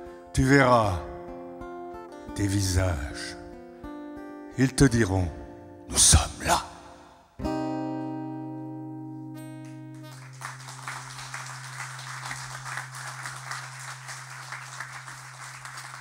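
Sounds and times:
acoustic guitar chord ringing: 7.4s - 10.2s
audience applause: 10.0s - 16.0s.

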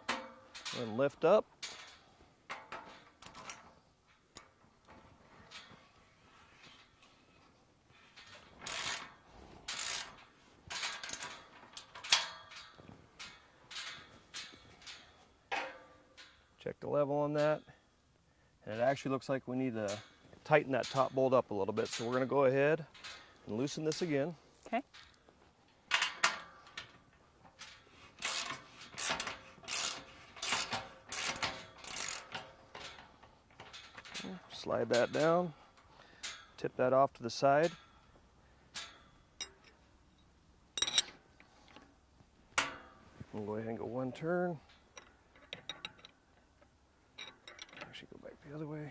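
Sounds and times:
ratchet wrench clicking: 8.6s - 9.1s, 9.7s - 10.1s, 28.2s - 32.4s
sharp metallic clink: 40.8s - 41.2s.

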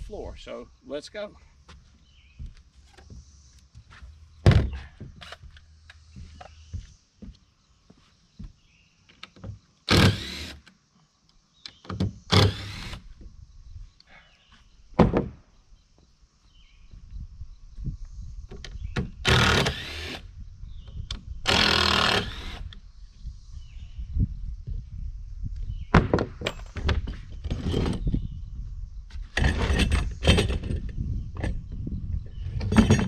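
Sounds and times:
wood knocking on plywood: 15.0s - 15.4s.

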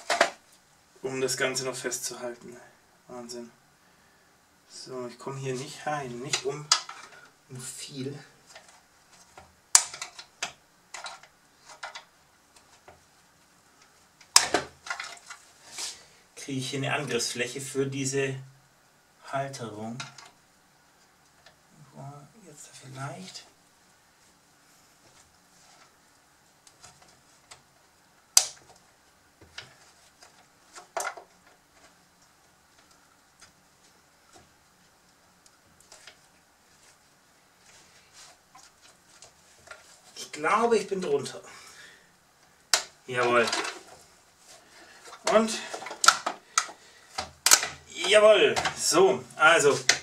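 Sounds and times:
toy plastic parts clicking: 45.1s - 47.8s.

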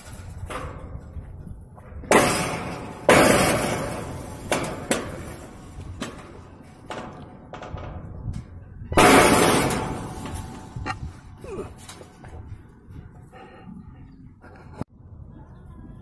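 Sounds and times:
metal mesh gate clanging and rattling: 2.1s - 12.4s.

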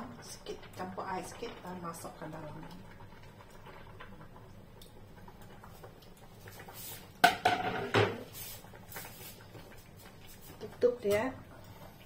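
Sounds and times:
kitchenware clanking: 7.2s - 8.3s.

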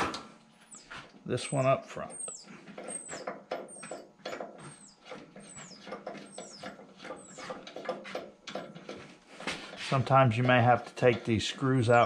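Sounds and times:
screws squeaking with clicks: 0.7s - 8.9s.

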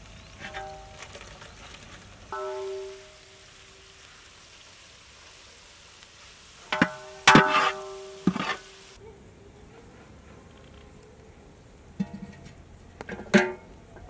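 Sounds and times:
metal ladle clanking on pot: 6.7s - 8.6s.

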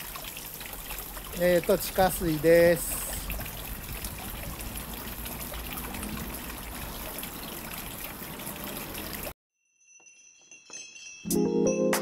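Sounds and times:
water splashing into stone basin: 0.0s - 9.3s.

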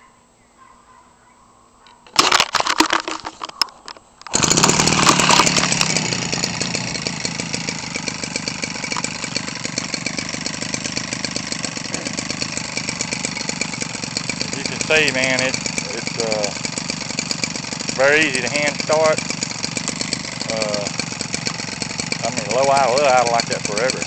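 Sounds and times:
knocks and clatters: 2.1s - 6.0s
two-stroke engine idling: 4.3s - 24.0s.

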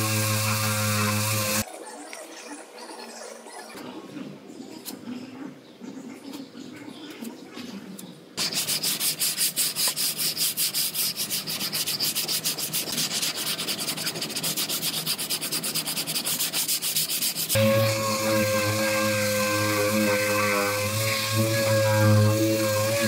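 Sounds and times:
power sander humming: 0.0s - 1.6s, 17.5s - 23.0s
sandpaper scraping back and forth: 0.0s - 1.7s, 8.4s - 23.0s.

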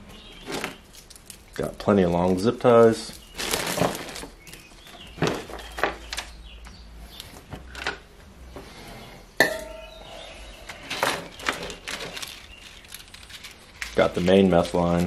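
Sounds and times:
parts clicking and clinking: 10.6s - 15.0s.

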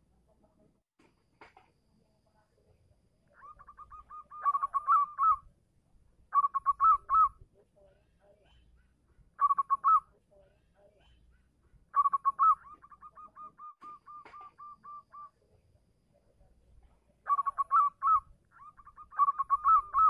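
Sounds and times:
dove cooing: 3.4s - 5.4s, 6.3s - 7.4s, 9.4s - 10.0s, 11.9s - 15.3s, 17.3s - 20.0s.

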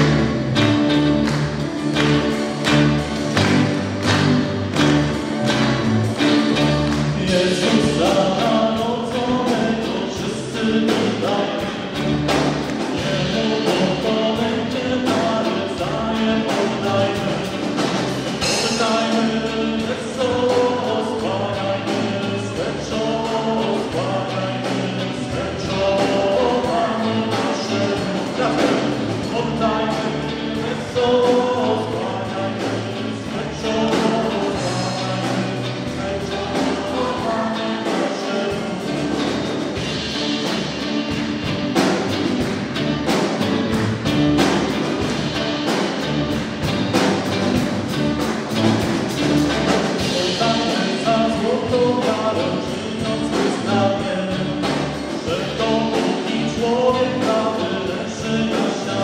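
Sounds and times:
acoustic guitar: 0.0s - 59.0s
bass guitar: 0.0s - 59.0s
drum kit with cymbals: 0.0s - 59.0s
man singing: 6.2s - 41.3s, 49.6s - 59.0s.

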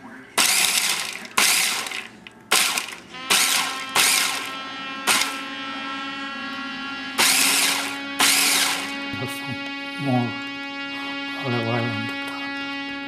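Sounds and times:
electric food chopper whirring: 0.4s - 5.4s, 7.2s - 9.0s.

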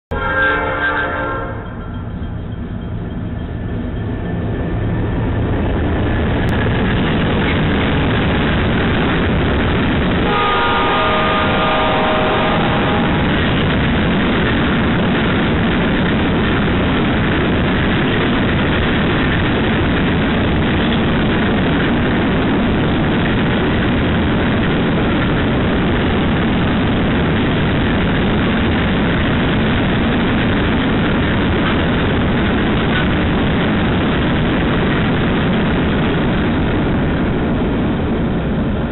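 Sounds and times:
locomotive horn chord: 0.1s - 1.9s, 10.2s - 13.5s
diesel locomotive engine: 0.1s - 38.9s.

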